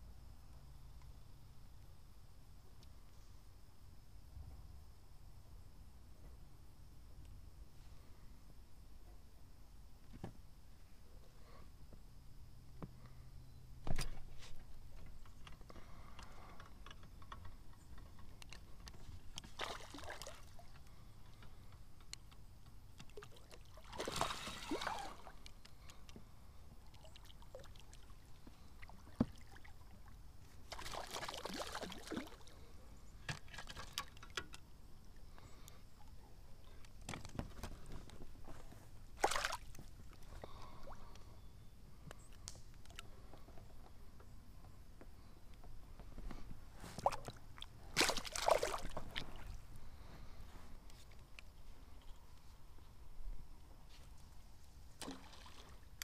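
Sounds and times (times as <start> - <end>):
fish splashing at water surface: 19.4 - 20.6, 23.1 - 25.4, 30.7 - 32.5, 39.2 - 39.8, 47.0 - 49.5.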